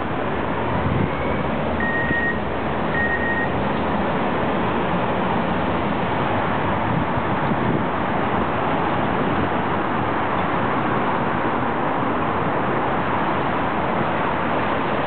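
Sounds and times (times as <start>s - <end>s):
city street traffic: 0.0s - 15.0s
short high beeps: 1.1s - 3.6s.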